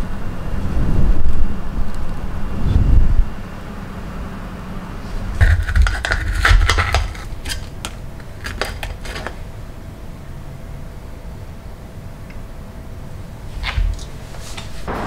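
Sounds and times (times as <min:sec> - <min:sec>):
plastic paddle scraping steel pot: 0:05.3 - 0:09.4.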